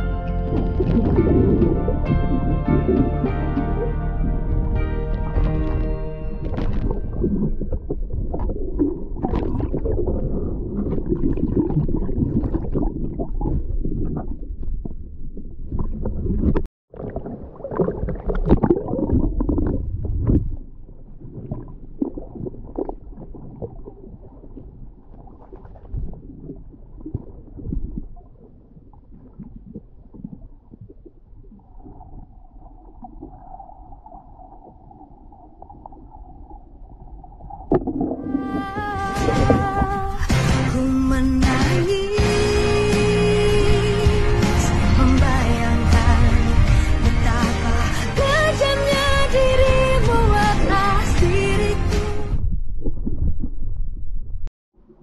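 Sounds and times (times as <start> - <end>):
muffled underwater rumbling: 0.0 - 55.0
crackle: 5.1 - 40.0.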